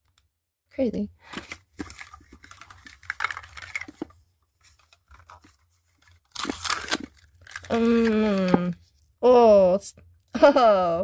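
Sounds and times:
wrappers crinkling and rustling: 1.3 - 9.1
wrapper tearing: 1.4 - 4.0, 4.8 - 8.5.

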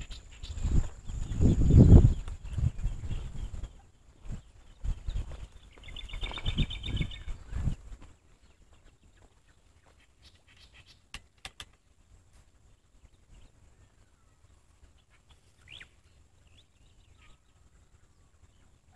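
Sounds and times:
bird chirping trill: 0.0 - 7.8, 8.4 - 11.7, 12.9 - 18.9
footsteps on stony dirt track: 3.5 - 10.1
sharp clicks: 11.1 - 11.8.

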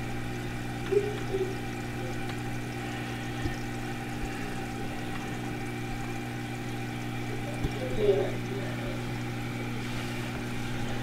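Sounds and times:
aquarium filter hum: 0.0 - 11.0
water trickling and splashing: 0.1 - 11.0.

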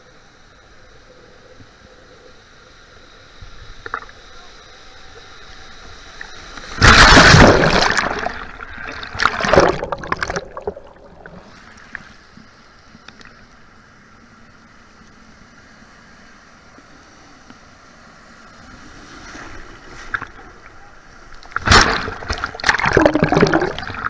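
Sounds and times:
breaking surf: 6.4 - 11.9, 18.1 - 24.0
water splash: 6.7 - 11.5, 21.4 - 24.0
wave rushing over camera: 16.6 - 24.0.

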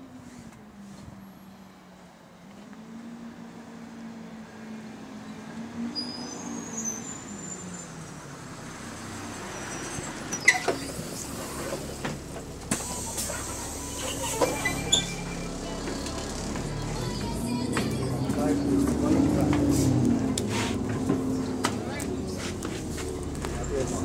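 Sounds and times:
bus engine humming: 6.8 - 24.0
short high tone: 12.8 - 16.8.

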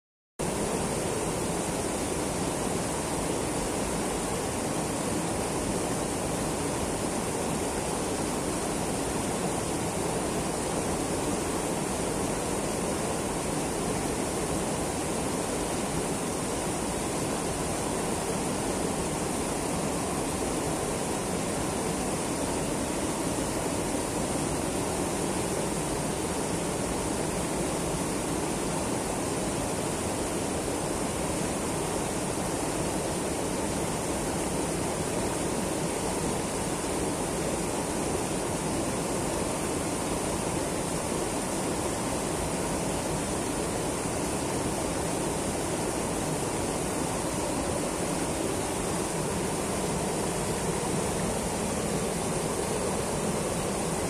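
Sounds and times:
river rushing over rocks: 0.4 - 54.0.

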